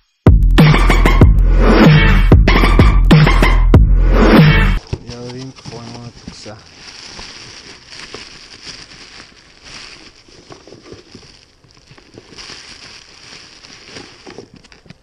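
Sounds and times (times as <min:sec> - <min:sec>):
bubble wrap crinkling: 0:04.8 - 0:15.0
cardboard rustling: 0:04.8 - 0:15.0.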